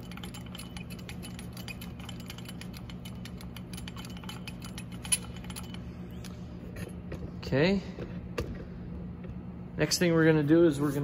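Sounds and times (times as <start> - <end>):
handwheel gearing clicks: 0.0 - 5.8
low hum: 0.0 - 11.0.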